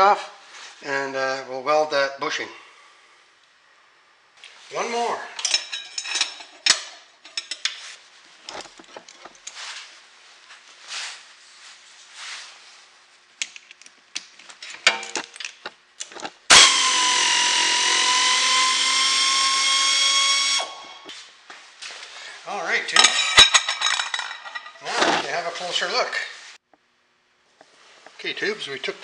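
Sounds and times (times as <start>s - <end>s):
metal clinks and clanks: 5.4s - 7.7s, 23.0s - 24.8s
pneumatic wrench whining: 16.5s - 21.1s.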